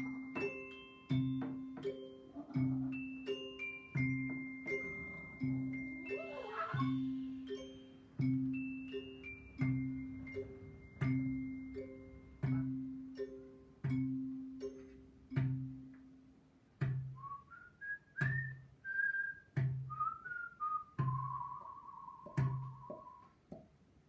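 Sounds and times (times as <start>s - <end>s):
low instrument notes: 0.0s - 16.0s
whistle sliding notes: 4.7s - 7.7s, 17.2s - 23.3s.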